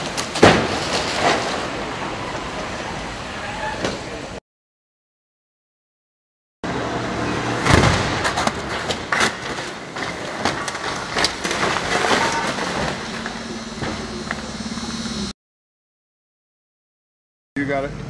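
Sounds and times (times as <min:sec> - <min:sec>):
car crashing onto road: 0:00.0 - 0:02.8, 0:07.5 - 0:14.4.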